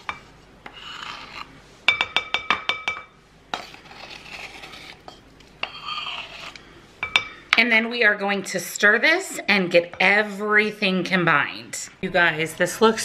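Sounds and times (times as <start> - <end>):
metal spoon scraping powder in tin: 0.7 - 1.5, 3.6 - 5.0, 5.6 - 6.6.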